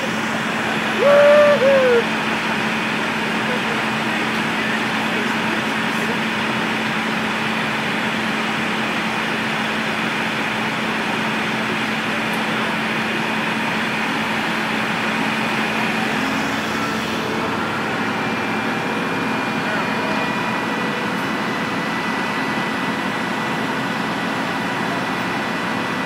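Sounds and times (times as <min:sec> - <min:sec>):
constant hum: 0:00.0 - 0:02.2
heavy diesel engines running: 0:00.0 - 0:26.0.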